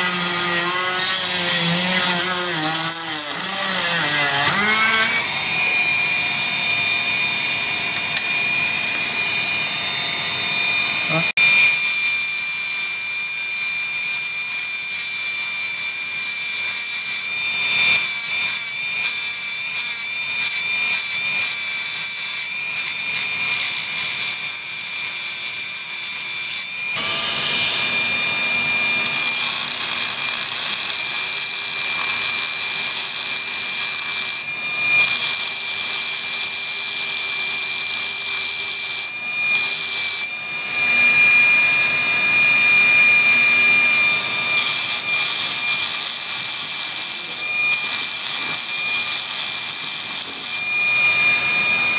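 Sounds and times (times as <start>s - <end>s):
rotary burr grinding iron: 0.0s - 6.5s, 17.8s - 41.6s, 43.2s - 51.8s
drill motor high whine: 0.0s - 51.9s.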